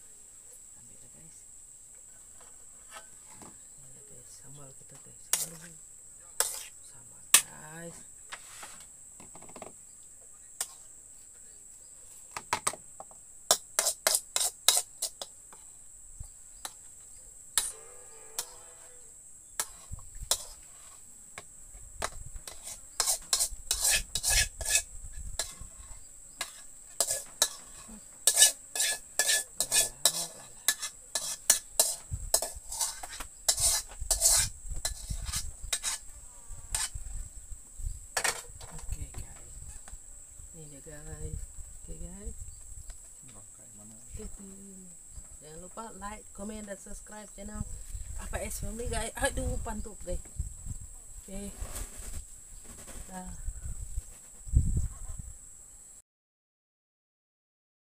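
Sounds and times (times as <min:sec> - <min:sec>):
crickets buzzing: 0:00.0 - 0:56.0
spoon scraping a wok: 0:05.3 - 0:05.7, 0:06.4 - 0:06.8, 0:10.6 - 0:10.9, 0:13.5 - 0:15.7, 0:17.6 - 0:21.1, 0:22.0 - 0:36.1, 0:36.7 - 0:37.0.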